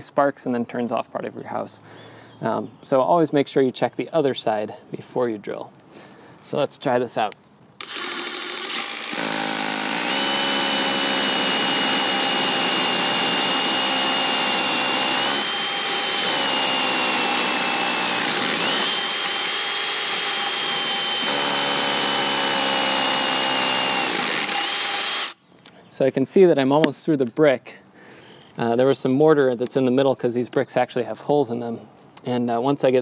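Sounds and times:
rotary hammer drilling into brick: 0:07.8 - 0:25.4.

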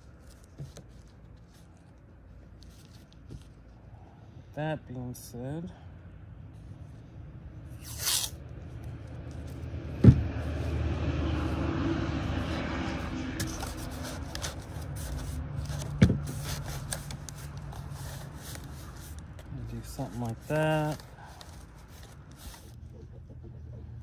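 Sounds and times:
low rumble: 0:08.4 - 0:15.9
scraping and rustling: 0:13.0 - 0:23.1.

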